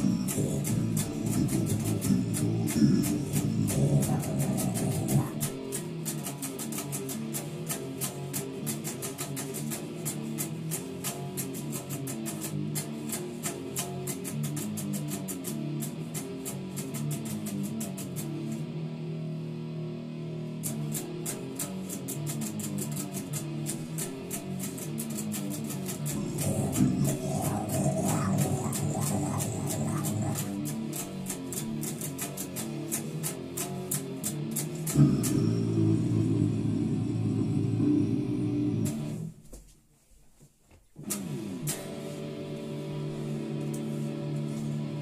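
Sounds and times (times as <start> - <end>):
electric guitar riff: 0.0 - 39.4, 41.0 - 45.0.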